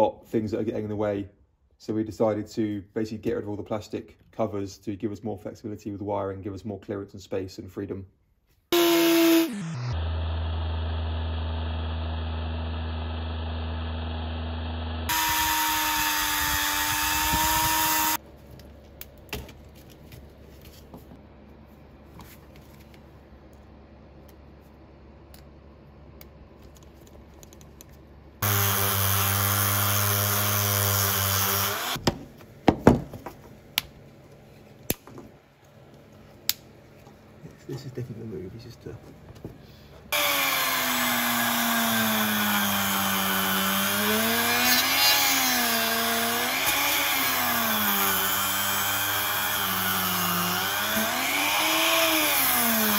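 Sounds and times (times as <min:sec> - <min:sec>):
power sanding tool whining: 0:08.8 - 0:18.2, 0:28.4 - 0:32.0, 0:40.1 - 0:52.9.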